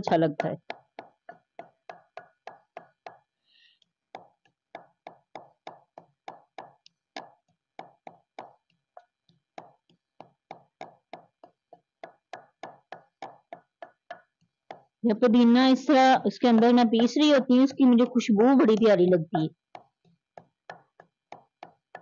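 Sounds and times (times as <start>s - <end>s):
wooden pestle pounding in stone mortar: 0.0s - 3.3s, 4.1s - 22.0s.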